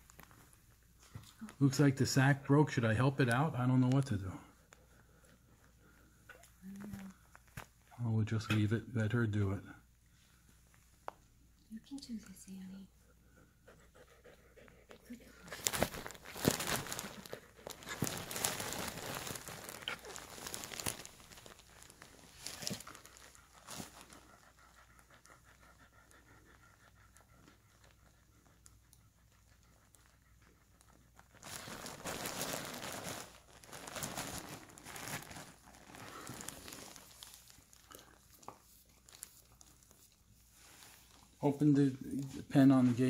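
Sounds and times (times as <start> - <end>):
dog panting: 12.9 - 18.9, 22.7 - 31.4
bedding rustling: 15.4 - 24.5, 31.4 - 41.6.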